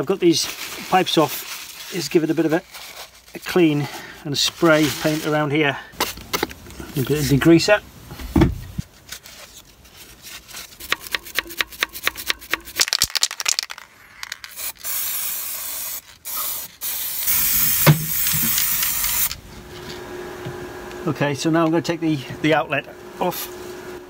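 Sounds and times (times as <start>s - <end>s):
aerosol spray hissing: 14.5s - 19.4s.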